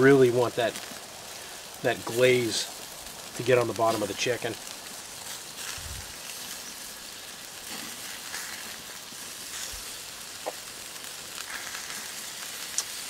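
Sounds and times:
meat sizzling over coals: 0.0s - 13.0s.

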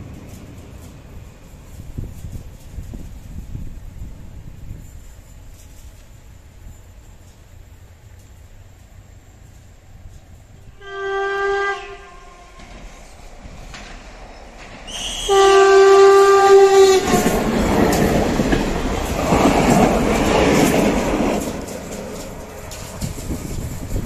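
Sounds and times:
train wheels rumbling on rails: 0.0s - 24.0s
train horn blasts: 10.6s - 13.0s, 14.9s - 18.1s.

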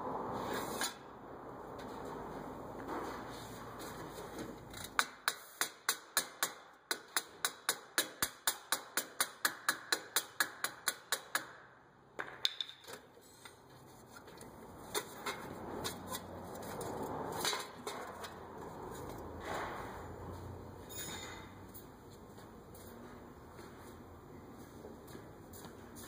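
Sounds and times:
hammer tapping steel hub: 4.9s - 11.6s
knocks and scrapes of metal part: 12.4s - 20.0s.

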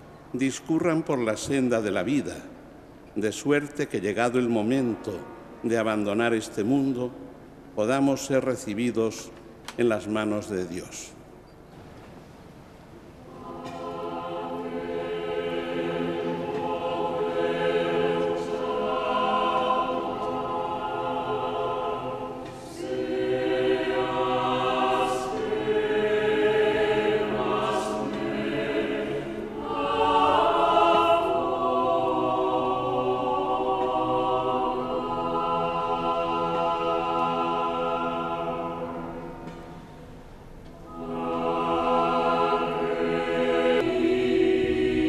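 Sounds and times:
choir singing: 13.2s - 45.0s.

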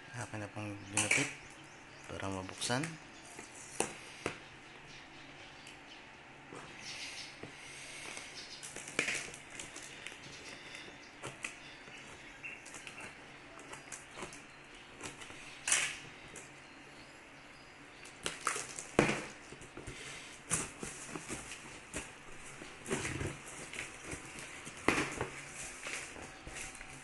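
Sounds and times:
packaging rustling: 7.3s - 16.6s, 18.1s - 27.0s
packaging clicks and knocks: 8.1s - 14.4s, 18.1s - 27.0s.

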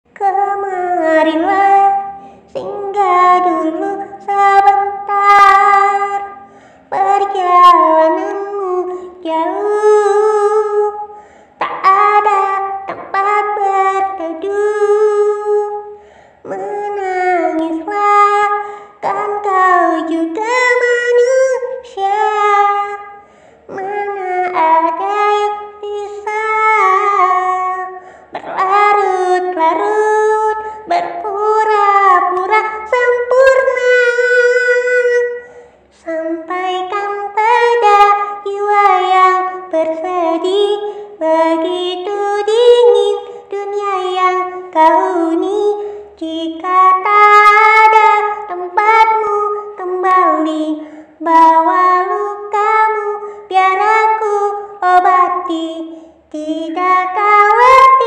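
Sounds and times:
high voice singing: 0.1s - 35.4s.

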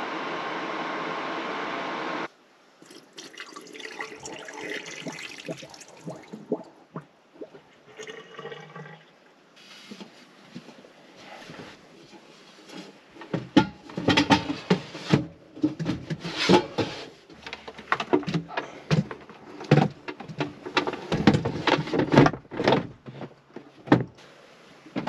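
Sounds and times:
rustling: 9.6s - 22.2s.

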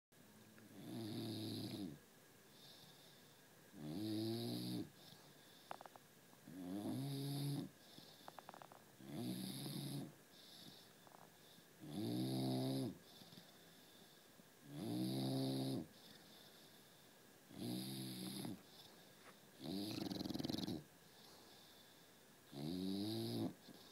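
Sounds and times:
dog snoring: 0.7s - 2.0s, 3.7s - 13.7s, 14.6s - 16.5s, 17.5s - 19.0s, 19.6s - 20.9s, 22.5s - 23.9s.

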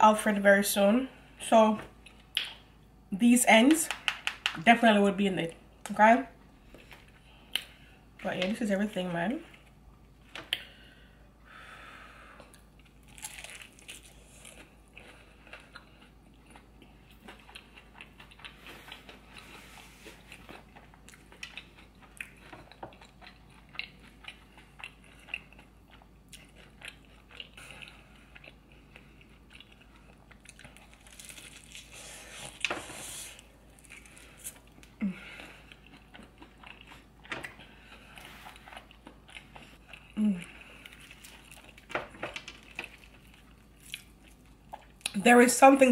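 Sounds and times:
person chewing crunchy food: 12.4s - 45.2s.

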